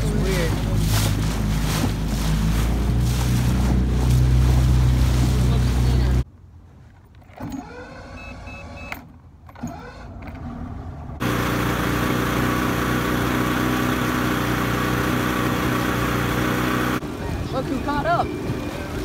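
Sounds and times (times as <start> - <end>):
outboard motor running: 0.0 - 6.2, 11.2 - 19.0.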